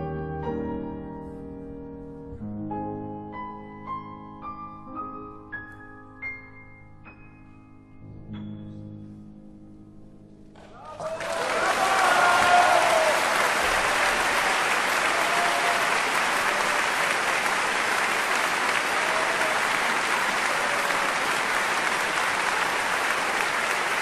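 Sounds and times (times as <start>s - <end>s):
audience applauding: 10.6s - 24.0s.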